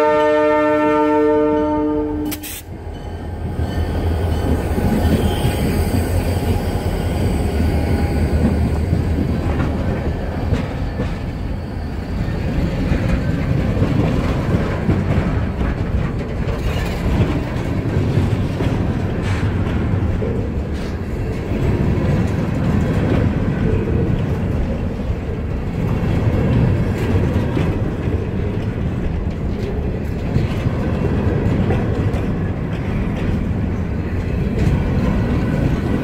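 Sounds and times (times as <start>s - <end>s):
locomotive horn chord: 0.0s - 2.4s
locomotives rumbling past: 0.0s - 36.0s
train wheels clattering on rails: 2.2s - 36.0s.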